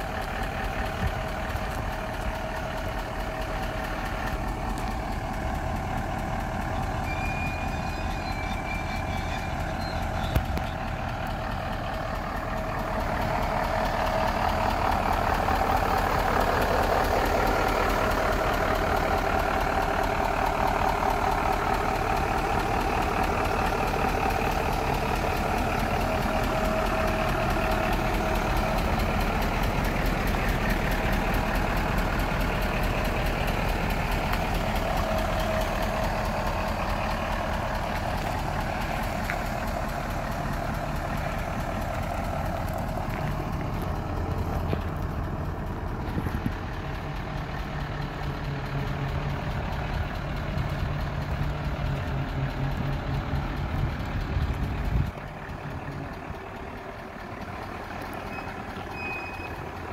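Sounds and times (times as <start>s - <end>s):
diesel truck engine idling: 0.0s - 59.9s.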